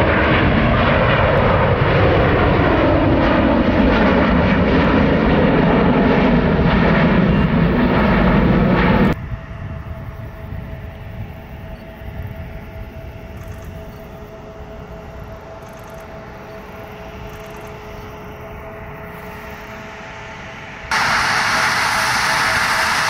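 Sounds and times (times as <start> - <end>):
jet engines idling hum: 0.0 - 23.0
loud rushing noise: 19.4 - 23.0.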